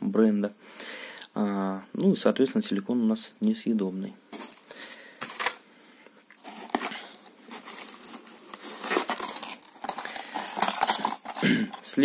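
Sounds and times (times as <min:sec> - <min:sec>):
hands handling packaging: 0:04.3 - 0:05.7, 0:06.3 - 0:12.0
plastic rustling: 0:04.3 - 0:05.7, 0:06.3 - 0:12.0.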